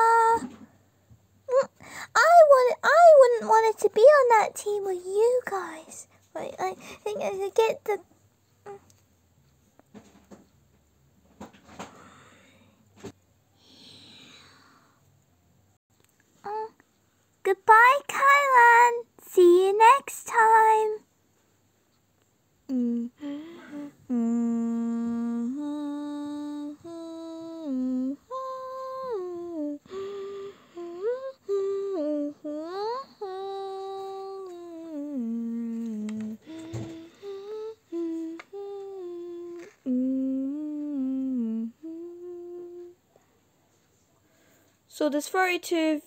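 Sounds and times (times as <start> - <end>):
person humming: 0.0 - 0.6, 16.4 - 16.8, 22.7 - 43.0.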